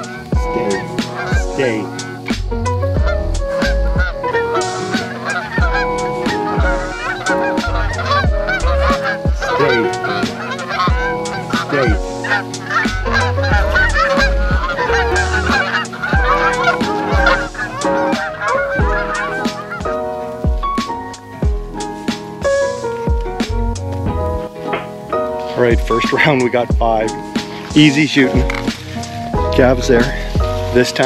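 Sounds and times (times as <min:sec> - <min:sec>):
geese honking: 0:00.0 - 0:31.0.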